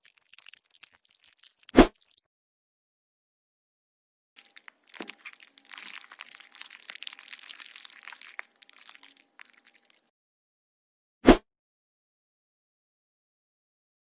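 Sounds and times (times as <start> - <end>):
crunching and scraping crackle: 0.0 - 2.2, 4.4 - 10.1.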